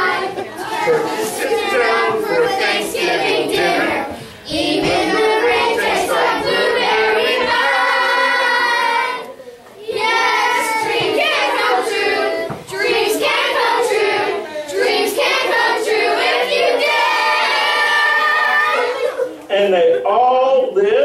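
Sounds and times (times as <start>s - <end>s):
children singing: 0.0s - 19.4s.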